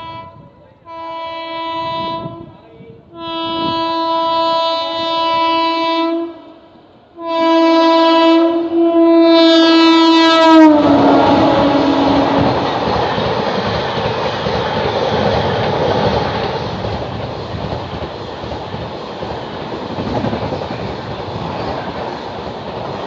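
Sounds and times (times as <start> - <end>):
train horn blasts: 0.0 - 12.6
passing train rumble: 0.0 - 23.0.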